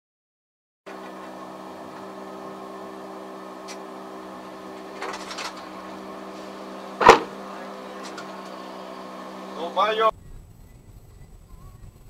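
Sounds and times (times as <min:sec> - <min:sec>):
car interior hum: 0:00.9 - 0:12.0
short rattle: 0:03.6 - 0:08.6.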